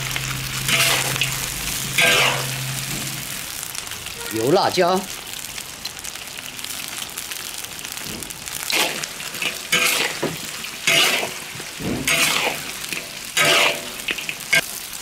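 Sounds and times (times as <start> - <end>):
meat sizzling in hot oil: 0.0 - 15.0
metal spatula scraping a wok: 0.2 - 3.4, 8.7 - 14.7.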